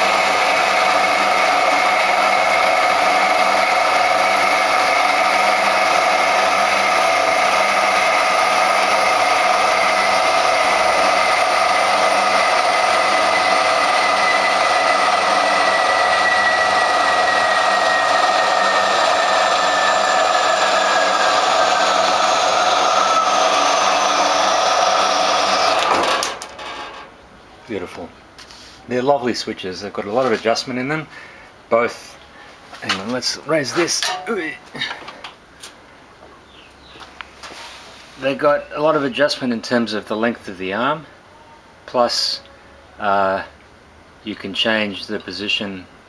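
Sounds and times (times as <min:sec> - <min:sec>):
bandsaw cutting metal: 0:00.0 - 0:27.1, 0:33.8 - 0:34.6
high whine: 0:00.0 - 0:27.2.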